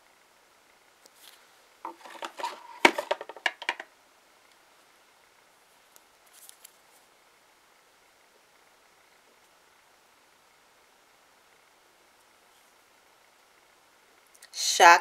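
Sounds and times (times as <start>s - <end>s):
faint rustle: 5.6s - 7.2s.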